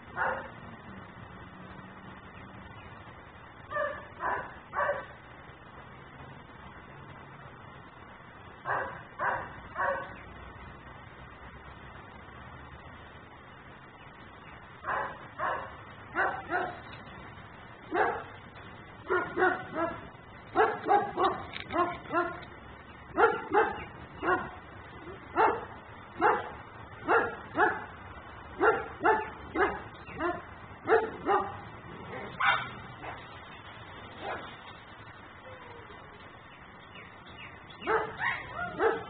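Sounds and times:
dog barking: 0:00.2 - 0:00.5, 0:03.7 - 0:05.1, 0:08.6 - 0:10.2, 0:14.8 - 0:16.8, 0:17.9 - 0:18.4, 0:19.0 - 0:22.4, 0:23.2 - 0:24.6, 0:25.3 - 0:27.9, 0:28.6 - 0:33.2, 0:37.8 - 0:39.0.

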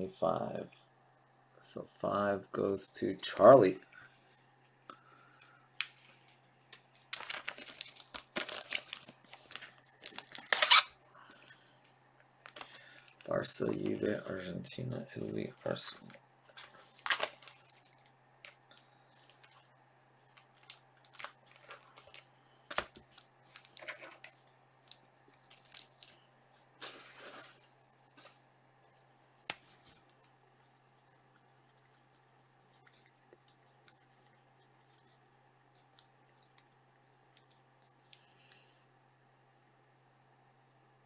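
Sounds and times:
wrapper rustles: 0:05.9 - 0:10.9, 0:15.7 - 0:28.4
steady low hum: 0:08.8 - 0:41.0.

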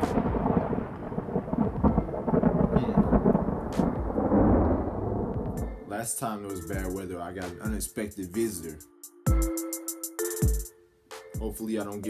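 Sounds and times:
thunder rumbling: 0:00.0 - 0:06.0.

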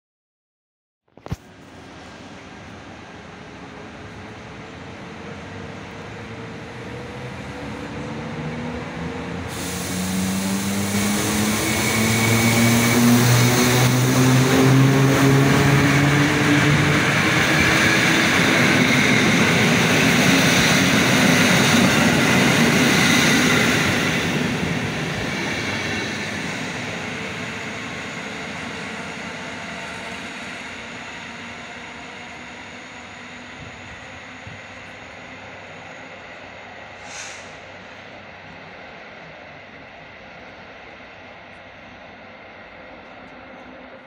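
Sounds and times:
electric locomotive hum: 0:01.5 - 0:44.0
train coaches rumbling on rails: 0:01.5 - 0:44.0.

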